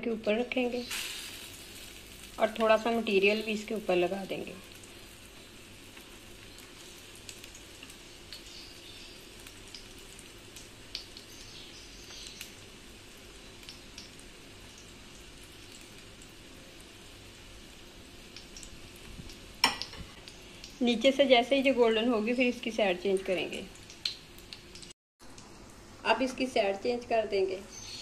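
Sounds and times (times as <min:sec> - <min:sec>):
bread frying in oil: 0:00.0 - 0:28.0
small pops and crackles: 0:04.7 - 0:08.7, 0:09.4 - 0:12.7, 0:13.5 - 0:16.3, 0:18.3 - 0:20.8, 0:23.7 - 0:25.6.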